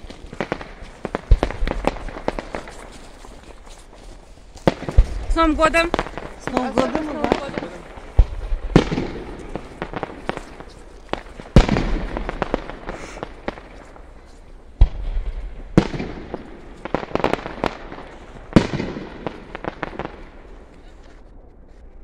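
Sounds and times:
loud booming firework bursts: 0:00.0 - 0:02.8, 0:04.7 - 0:14.0, 0:14.8 - 0:20.4
firework pops and crackles: 0:00.0 - 0:22.0.

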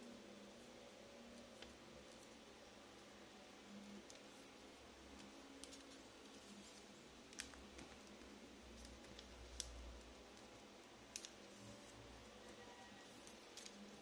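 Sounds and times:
paper clicks and ticks: 0:07.3 - 0:11.5.

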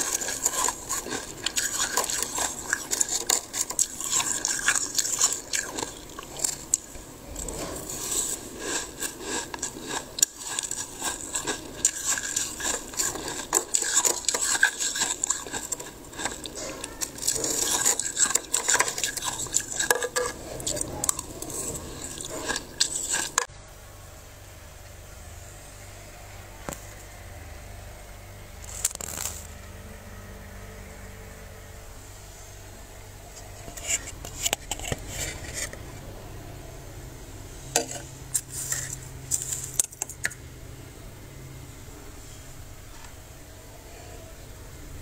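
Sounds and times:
metal spoon scraping frost: 0:00.0 - 0:23.5, 0:28.6 - 0:29.6, 0:33.3 - 0:35.8, 0:37.8 - 0:40.2.

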